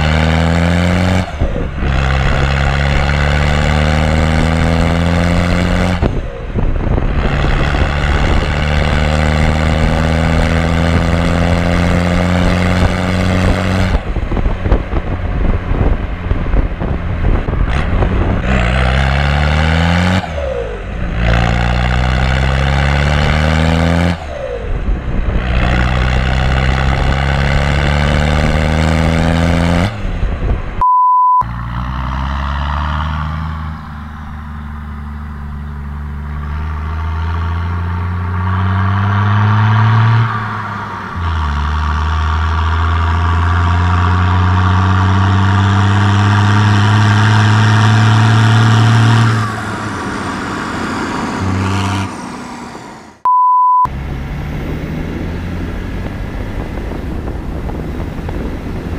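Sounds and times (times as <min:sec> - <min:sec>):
car diesel engine accelerating: 0:00.0 - 0:58.9
tractor diesel engine revving: 0:00.0 - 0:58.9
short electronic beep: 0:30.8 - 0:31.5, 0:53.3 - 0:53.9.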